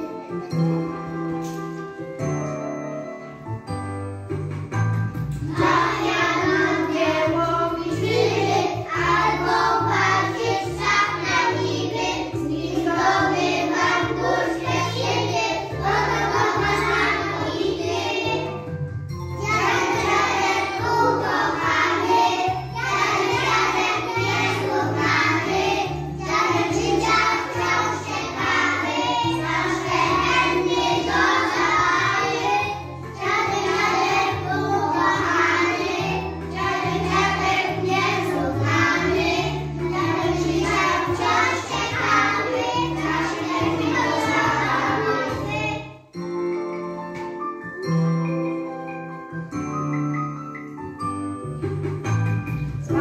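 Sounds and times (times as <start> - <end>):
children singing: 5.4 - 18.6, 19.4 - 45.9.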